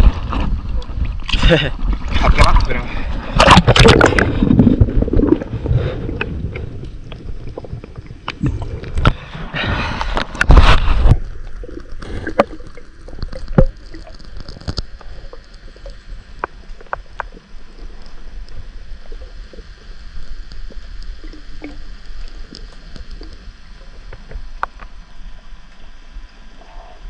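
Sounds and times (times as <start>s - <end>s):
underwater rush of water: 0.0s - 27.0s.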